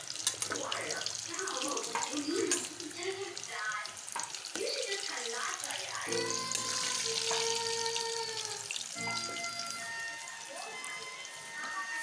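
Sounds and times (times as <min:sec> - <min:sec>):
pastries deep-frying in oil: 0:00.0 - 0:12.0
background music with held notes: 0:05.9 - 0:12.0.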